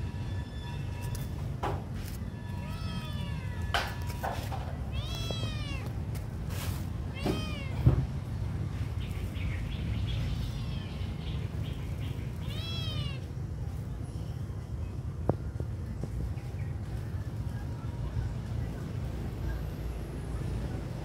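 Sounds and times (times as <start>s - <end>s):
kitten meowing: 2.3s - 4.2s, 4.9s - 5.9s, 7.1s - 7.8s, 12.4s - 13.3s.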